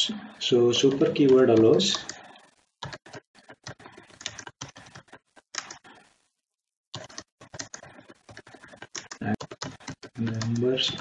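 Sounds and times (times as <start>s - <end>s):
computer keyboard typing: 0.7s - 6.1s, 7.0s - 11.0s.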